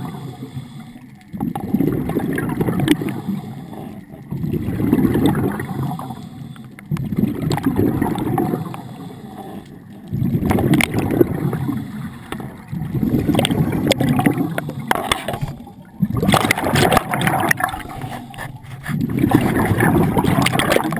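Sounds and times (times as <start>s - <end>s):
diver exhaling bubbles underwater: 1.3s - 20.9s.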